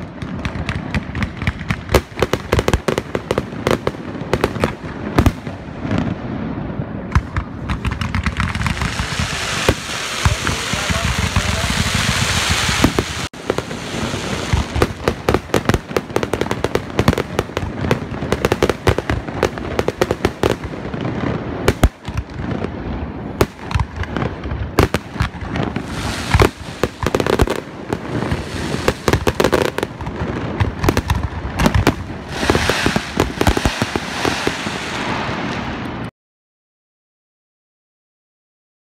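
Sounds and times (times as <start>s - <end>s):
fireworks bangs and crackles: 0.0s - 36.1s
rushing hiss: 25.8s - 26.8s, 32.2s - 35.3s.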